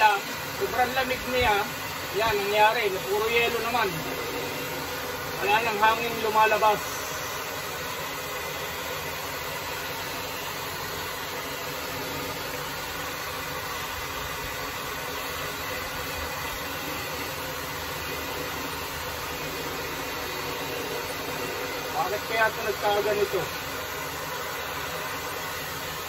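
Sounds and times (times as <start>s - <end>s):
hair dryer blowing: 0.0s - 26.0s.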